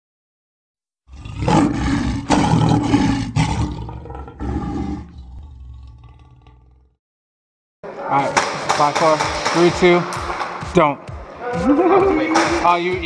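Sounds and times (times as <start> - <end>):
lion roaring: 1.1 - 7.0.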